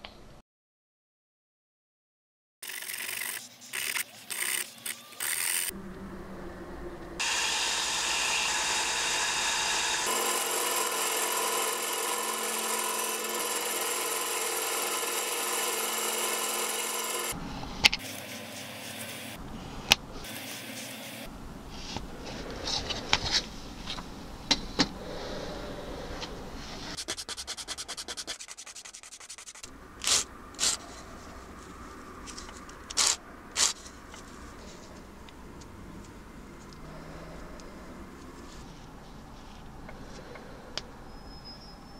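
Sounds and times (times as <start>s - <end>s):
power saw cutting: 7.2s - 17.4s, 20.2s - 21.3s
sandpaper rasping strokes: 20.2s - 21.3s, 26.8s - 31.1s, 32.3s - 33.9s.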